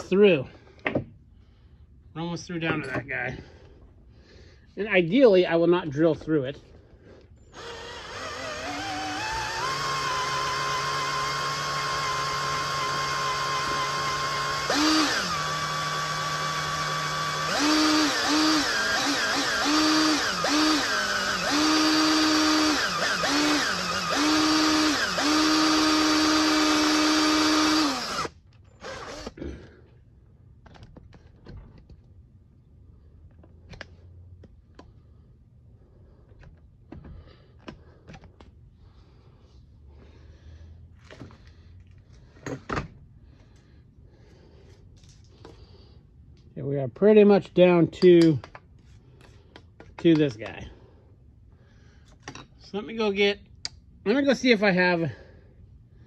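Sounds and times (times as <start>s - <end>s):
cordless drill boring metal: 7.5s - 29.4s.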